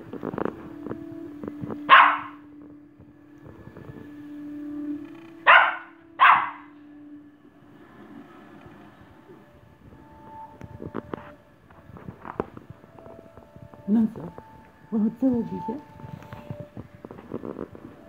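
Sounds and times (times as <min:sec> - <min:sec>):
dog barking: 0:01.9 - 0:02.4, 0:05.4 - 0:06.7.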